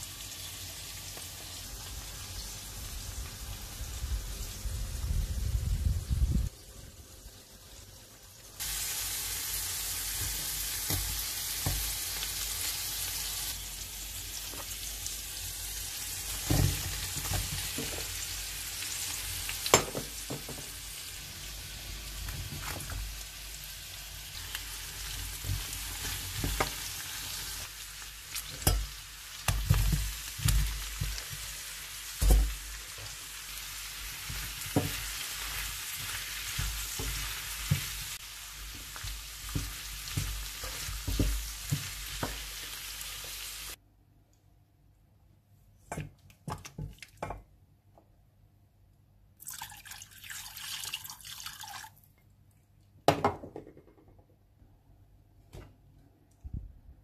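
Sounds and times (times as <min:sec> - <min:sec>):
food sizzling: 0:00.0 - 0:43.8.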